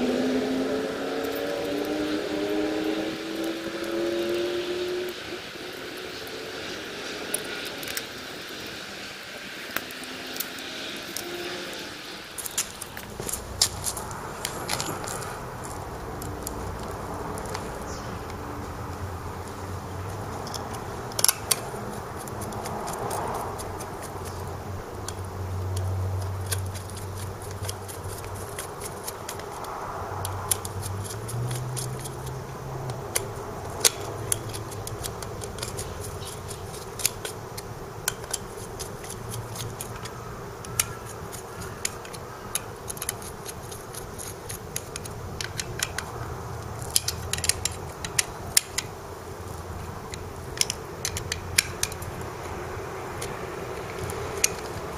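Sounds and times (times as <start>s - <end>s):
steady low hum: 0.0s - 54.9s
screwdriver clicking on screws: 12.4s - 18.4s, 20.0s - 54.9s.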